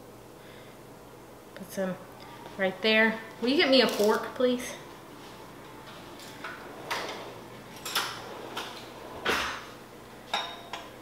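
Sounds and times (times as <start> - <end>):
cutlery clattering: 6.2 - 9.6, 10.3 - 11.0
kitchen drawer opening and shutting: 6.3 - 9.8.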